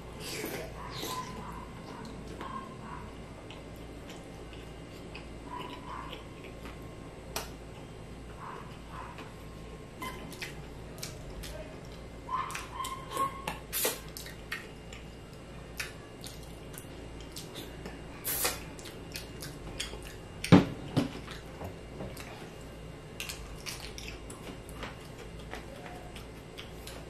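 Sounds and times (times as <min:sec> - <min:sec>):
wet chewing: 0:00.2 - 0:07.5, 0:10.1 - 0:20.5, 0:23.2 - 0:27.0
lip smacks: 0:12.5 - 0:15.0.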